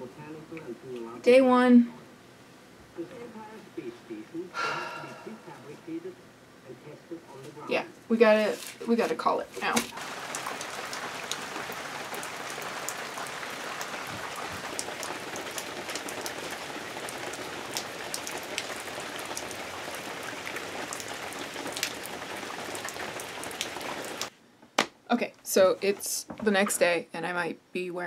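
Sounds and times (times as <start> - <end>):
rain falling on paving stones: 9.6 - 24.3.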